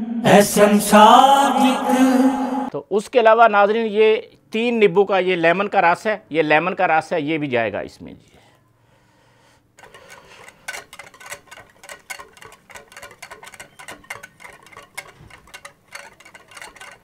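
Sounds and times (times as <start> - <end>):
whisk clicking against glass bowl: 9.8 - 17.0.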